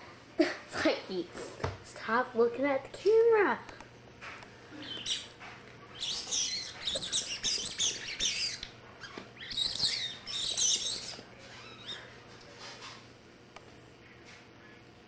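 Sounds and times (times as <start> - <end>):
rubber ball squeaking: 4.8 - 12.1.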